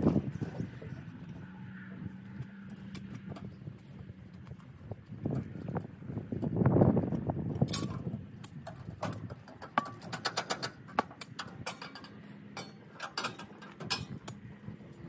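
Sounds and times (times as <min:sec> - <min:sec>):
sharp clicks and knocks: 0:07.6 - 0:14.4.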